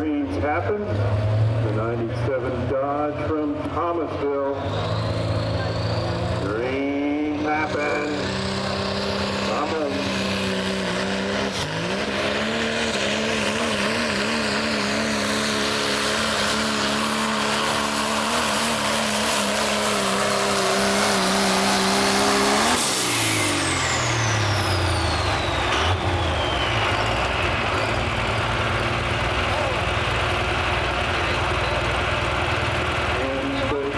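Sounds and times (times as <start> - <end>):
diesel truck engine at full throttle: 0.0 - 33.9
turbo whistle winding down: 22.8 - 28.0.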